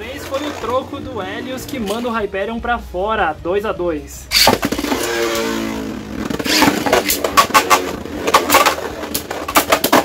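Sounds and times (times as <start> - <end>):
spinning tops whirring: 4.3 - 10.0
spinning tops clashing: 6.3 - 10.0.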